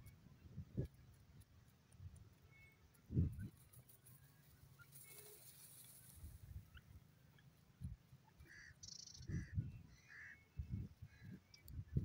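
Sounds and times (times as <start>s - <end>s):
bird scuffling in soil: 3.3s - 6.7s
soft short bird calls: 8.2s - 11.6s.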